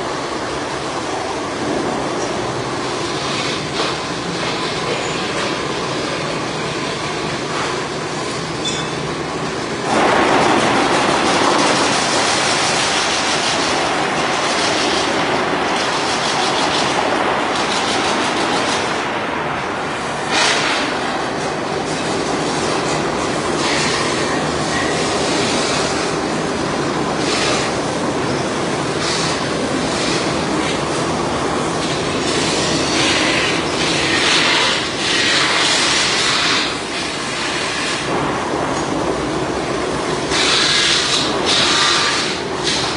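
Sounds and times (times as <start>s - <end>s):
lathe metallic rumble and rattle: 0.0s - 42.9s
loud hiss: 19.8s - 38.3s, 40.0s - 42.9s.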